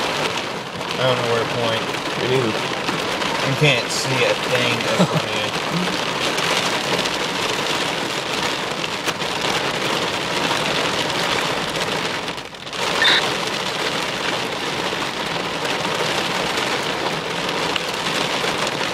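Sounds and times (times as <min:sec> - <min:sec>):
heavy rain on a car roof: 0:00.0 - 0:18.9
short high squeak: 0:13.0 - 0:13.2.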